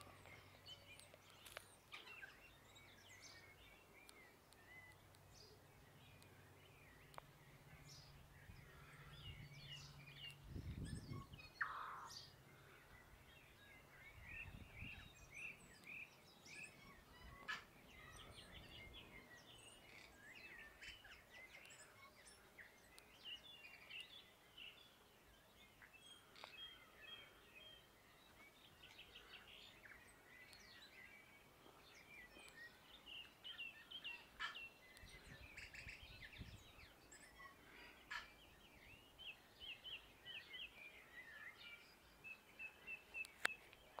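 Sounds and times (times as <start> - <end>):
bird singing whistled notes: 38.5 - 44.0
sharp bird clicks: 43.2 - 44.0.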